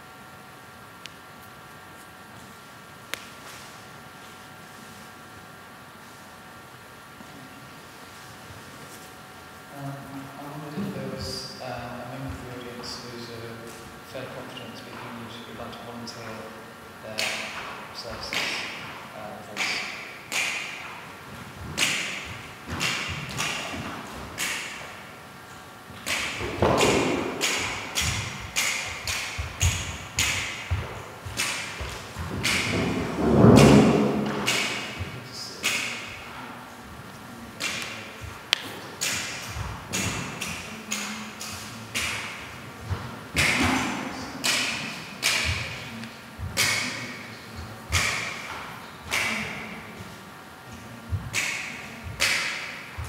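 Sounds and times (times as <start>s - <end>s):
loud echoing thuds: 21.6s - 24.9s, 26.0s - 35.2s.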